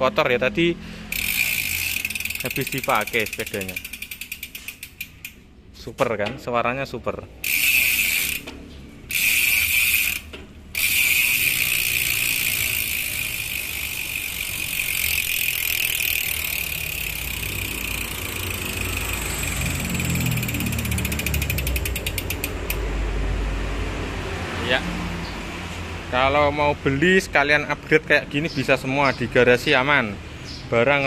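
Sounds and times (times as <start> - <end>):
bicycle freehub clicking: 1.0 - 5.5, 7.4 - 22.9.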